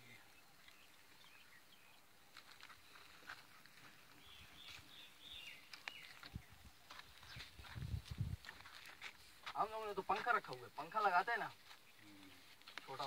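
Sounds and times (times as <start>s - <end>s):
faint bird chirps: 0.0s - 8.0s, 11.8s - 12.6s.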